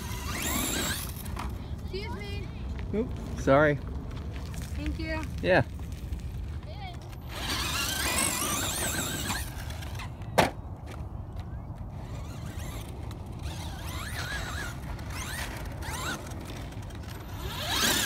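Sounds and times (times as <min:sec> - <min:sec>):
electric motor whining: 0:00.0 - 0:01.2, 0:07.2 - 0:10.1, 0:12.0 - 0:18.0.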